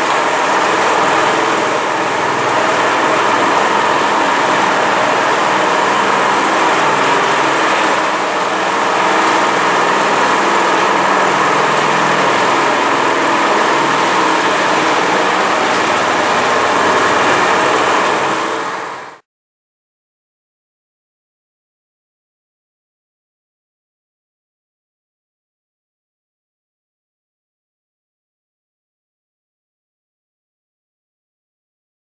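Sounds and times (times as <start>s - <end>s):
power trowel engine running: 0.0s - 19.2s.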